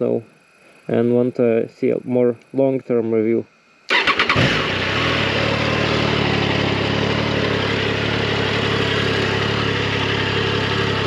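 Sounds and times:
motorcycle engine idling: 4.0 - 11.0.

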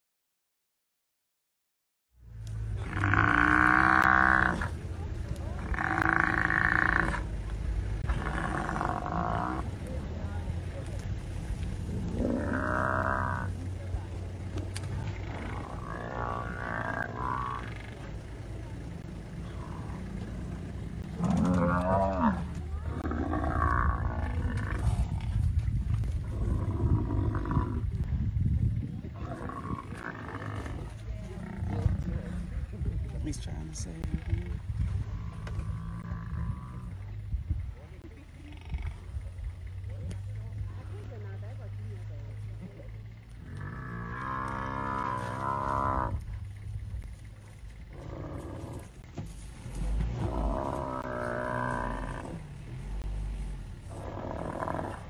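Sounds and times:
low rumble: 2.2 - 55.0
lions growling: 2.5 - 9.9, 11.7 - 28.0, 29.1 - 33.1, 34.0 - 55.0
buffalo bellowing: 2.6 - 4.8, 5.4 - 7.4, 8.0 - 9.7, 11.9 - 13.6, 15.2 - 18.1, 19.4 - 25.2, 35.0 - 37.2, 42.4 - 46.6, 49.9 - 53.0, 53.9 - 55.0.

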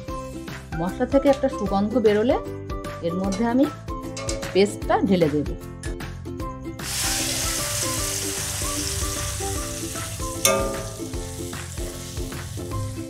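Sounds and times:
paste sizzling in hot oil: 6.8 - 13.0.

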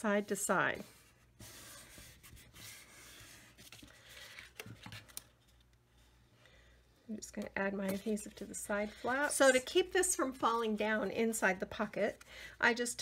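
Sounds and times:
paper rustling and rubbing: 0.0 - 5.6.

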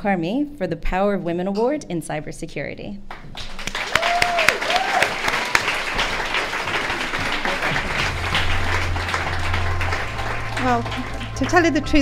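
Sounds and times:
audience applauding: 3.2 - 12.0
music with low bass note: 7.7 - 12.0.

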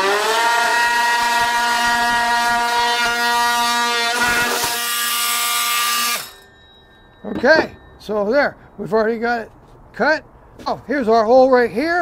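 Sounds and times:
oscillating multi-tool buzzing: 0.0 - 8.0.

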